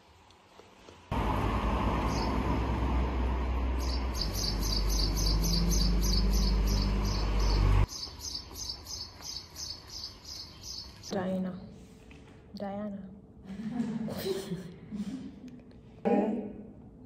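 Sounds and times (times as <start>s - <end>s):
wind and road rumble: 0.4s - 7.9s
high chirps: 3.8s - 11.1s.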